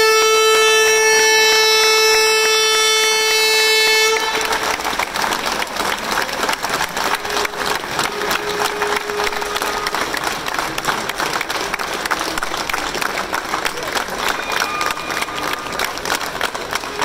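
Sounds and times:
boat horn blast: 0.0s - 5.3s, 6.9s - 10.6s, 14.2s - 16.1s
crowd applause: 0.0s - 17.0s.

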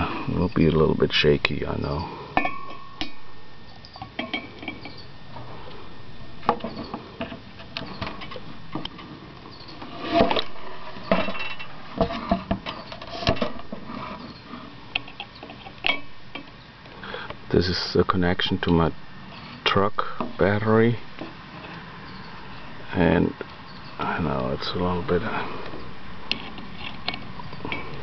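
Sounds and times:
metal bolts clinking against glass: 3.8s - 5.1s.

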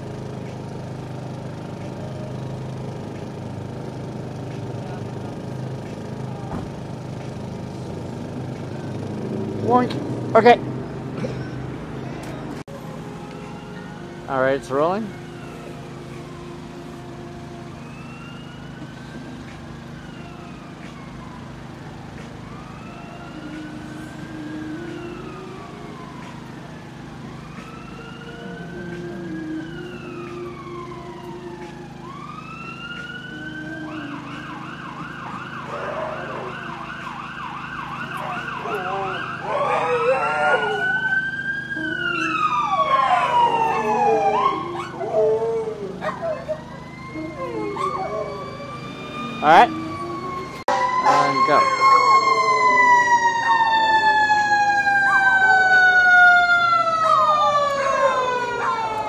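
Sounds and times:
emergency siren wailing and yelping: 13.3s - 59.0s.

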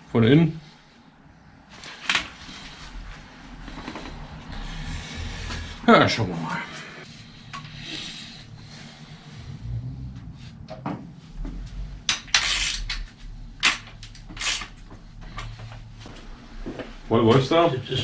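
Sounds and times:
tools scraping: 12.1s - 15.5s.

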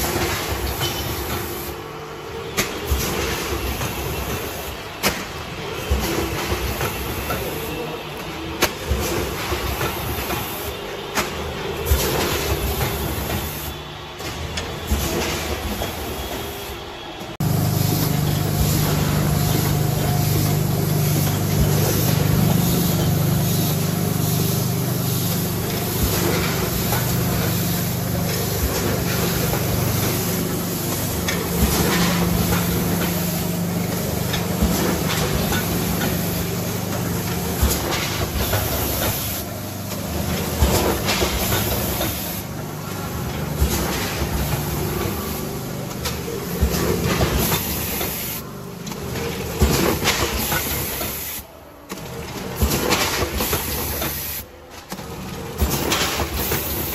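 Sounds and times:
machinery clicks and clacks: 0.0s - 1.8s, 2.5s - 56.9s
machine low hum: 17.4s - 38.9s.

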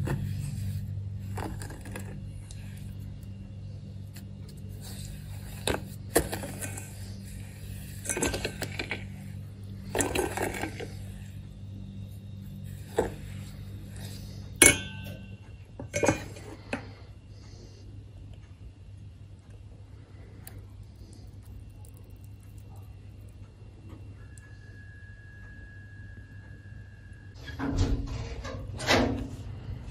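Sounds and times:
low steady hum: 0.0s - 29.9s
metal spoon scraping steel bowl: 4.1s - 11.4s, 12.5s - 15.4s
spoon clinking on steel: 14.6s - 15.4s.

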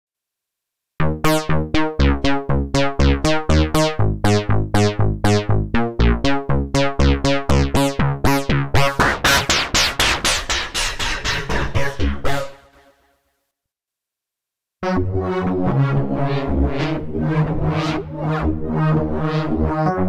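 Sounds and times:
plucked synth bass line: 1.0s - 9.6s, 14.9s - 20.0s.

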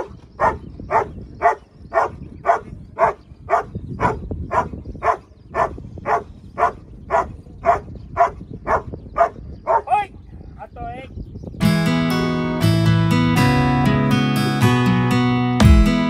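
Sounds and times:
dog barking: 0.0s - 9.9s.

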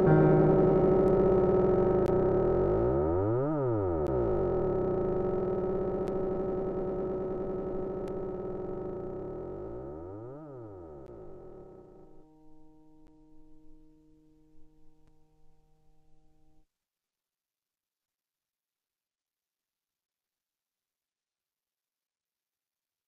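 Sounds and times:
synthesizer chord with phaser sweep: 0.0s - 16.1s.

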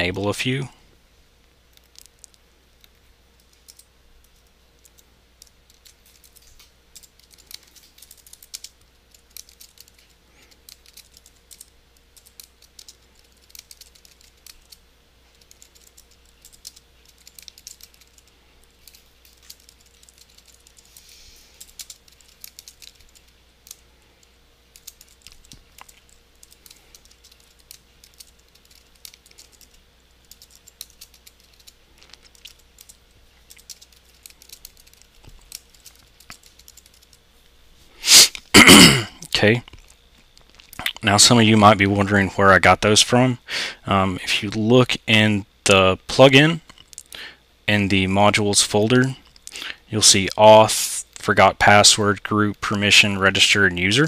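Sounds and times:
faint steady hum: 0.0s - 54.0s
typing on computer keyboard: 3.4s - 3.9s, 4.8s - 14.8s, 15.4s - 23.8s, 24.7s - 37.2s.

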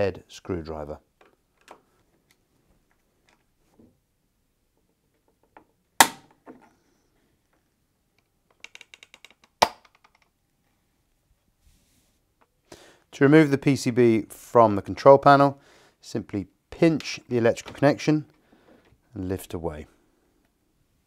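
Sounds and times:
small clicks: 8.2s - 10.3s.

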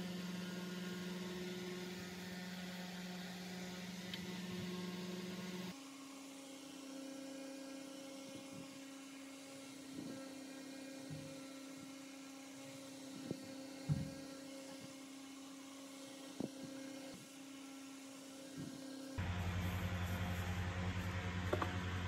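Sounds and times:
dull thump: 13.9s - 14.2s.

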